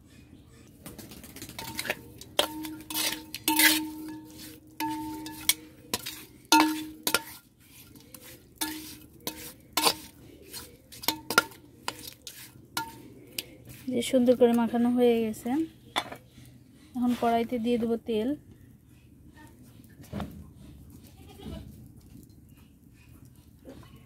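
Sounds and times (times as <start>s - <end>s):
metal spatula scraping clay bowl: 1.5s - 16.3s.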